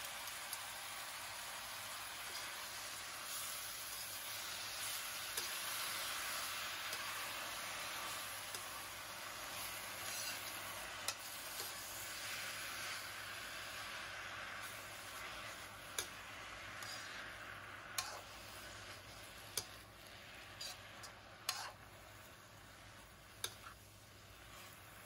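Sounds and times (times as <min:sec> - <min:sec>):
vegetables sizzling in hot oil: 0:00.0 - 0:25.0
spatula clicking against pan: 0:08.5 - 0:08.7, 0:11.0 - 0:11.8, 0:15.9 - 0:16.2, 0:18.0 - 0:18.2, 0:19.5 - 0:19.8, 0:21.5 - 0:21.7, 0:23.4 - 0:23.7.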